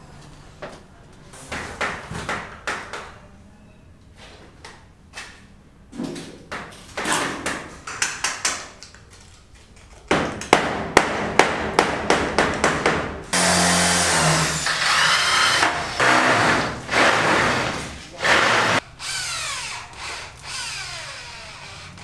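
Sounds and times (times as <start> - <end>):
electric drill running: 13.4 - 22.0.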